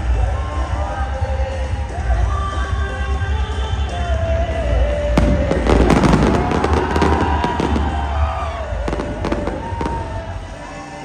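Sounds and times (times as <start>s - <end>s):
loud music with heavy bass: 0.0s - 11.0s
fireworks crackling and popping: 5.0s - 10.6s.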